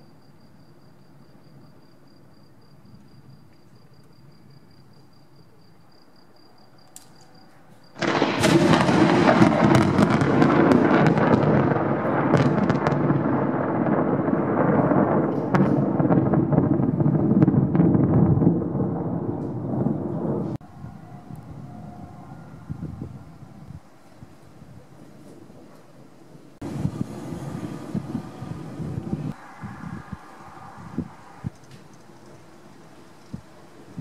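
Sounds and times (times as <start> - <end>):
thunder crackling and rumbling: 8.0 - 34.0.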